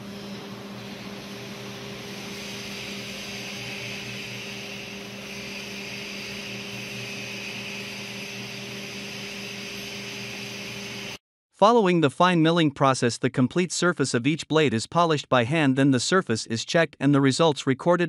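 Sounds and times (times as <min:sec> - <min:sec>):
milling machine hum: 0:00.0 - 0:11.2.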